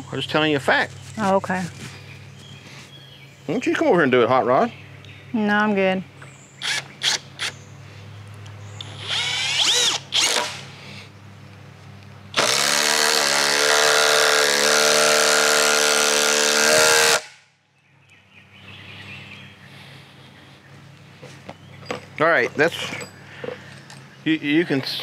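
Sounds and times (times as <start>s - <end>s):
cordless drill driving screw: 6.6s - 7.5s, 8.8s - 10.6s, 12.4s - 17.2s.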